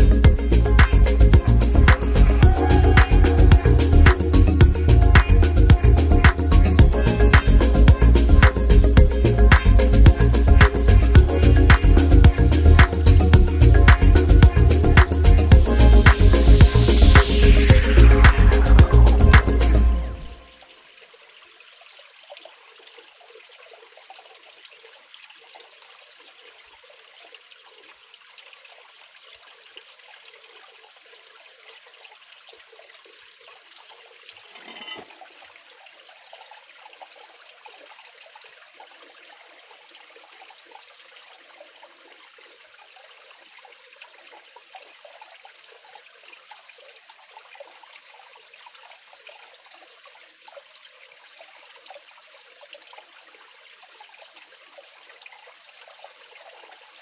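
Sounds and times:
water splash: 0.0 - 20.6
water sloshing and trickling: 0.0 - 57.0.

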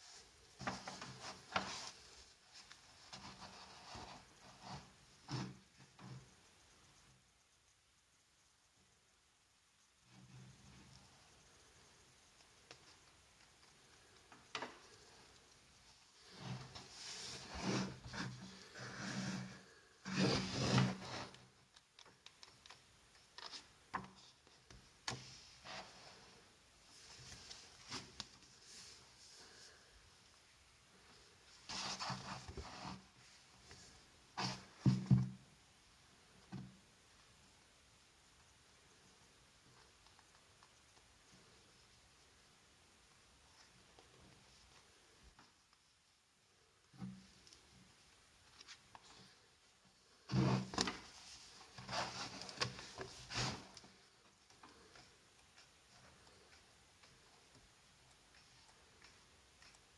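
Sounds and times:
book pages flipping: 50.3 - 59.9.

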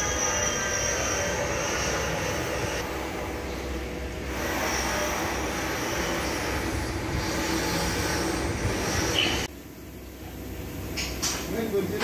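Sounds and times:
large engine droning: 0.0 - 9.5
thin high whine: 0.0 - 9.5.

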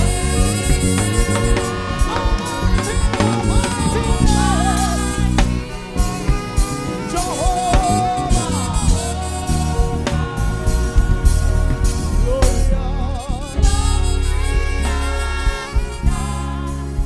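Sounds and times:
person singing melismatic runs: 0.0 - 16.8
gospel band playing: 0.0 - 17.0.

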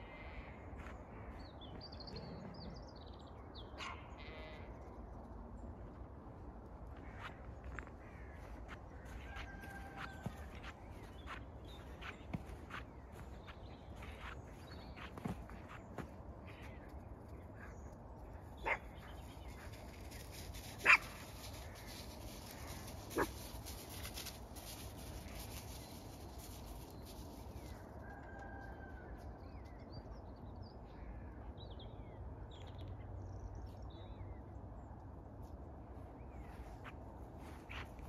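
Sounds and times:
dog barking: 18.6 - 18.9, 20.8 - 21.2.

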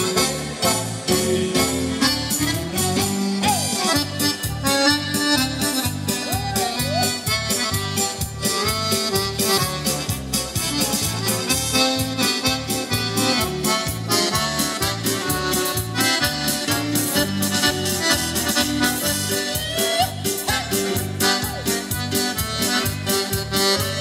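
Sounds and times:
accordion dance music: 0.0 - 24.0
pulsing bass beat: 2.5 - 24.0.

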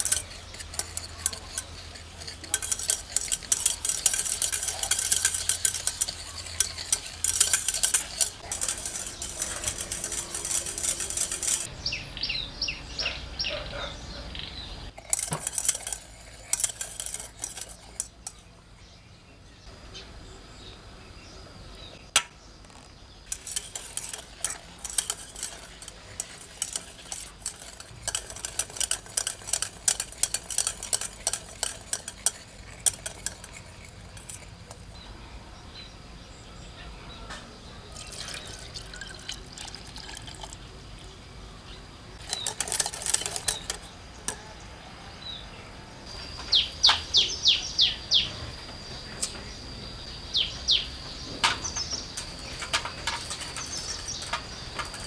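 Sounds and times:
whisk clicking against saucepan: 0.0 - 11.7, 15.0 - 18.4, 23.3 - 35.0, 38.0 - 40.6, 42.2 - 44.4
bird chirping: 0.0 - 39.8, 40.4 - 55.0.

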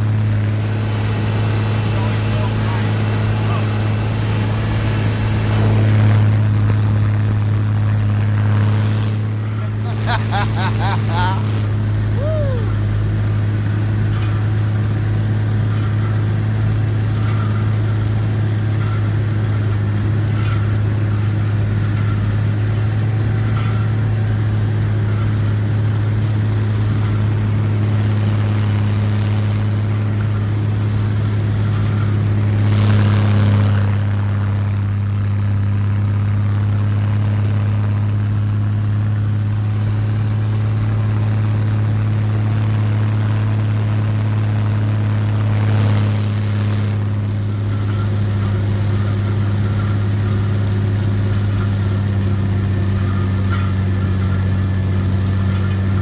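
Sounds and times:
rush of noise: 0.0 - 13.2
snow cat engine droning: 0.0 - 56.0.

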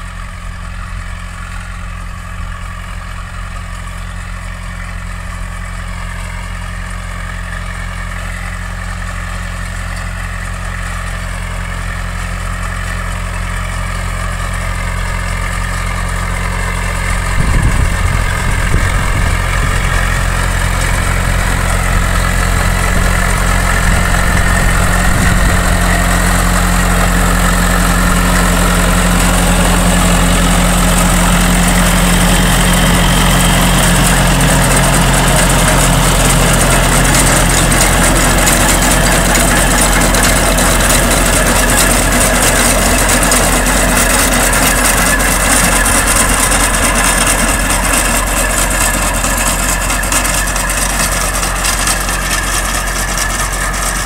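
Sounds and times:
tractor diesel engine: 0.0 - 54.0
digger rattling through soil: 12.4 - 54.0.

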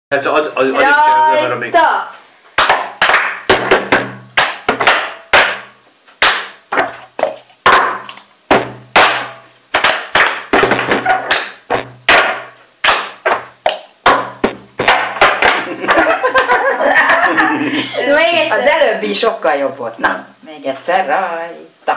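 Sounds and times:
plastic cups knocking on table: 2.6 - 15.7
hand claps: 2.6 - 16.0.

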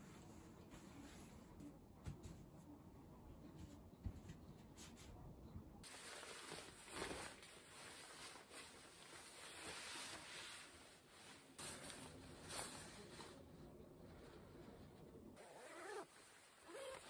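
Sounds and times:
rain jacket fabric rustling: 5.8 - 13.5, 15.4 - 17.0.

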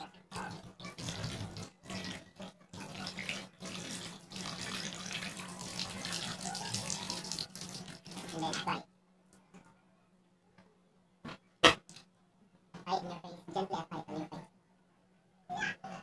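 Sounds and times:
tap water running into a basin: 0.0 - 8.8.

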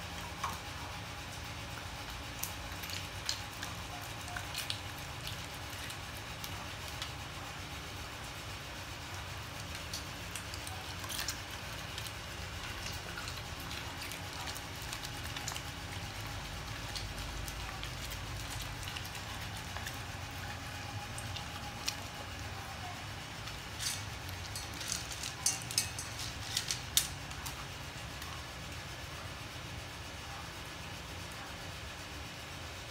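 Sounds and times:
steady low hum: 0.0 - 32.9
dog chewing with wet crunches: 8.6 - 28.4.

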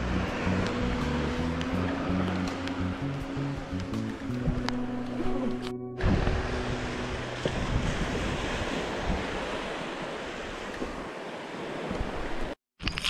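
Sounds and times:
wind on microphone: 0.0 - 12.6
small waves washing onto sand: 6.0 - 12.6.

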